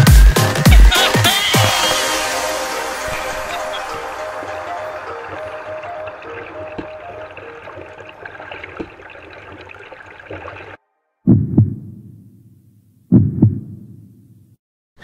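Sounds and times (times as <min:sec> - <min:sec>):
background music: 0:00.0 - 0:08.7
low booming double thump: 0:11.3 - 0:12.4, 0:13.1 - 0:14.2.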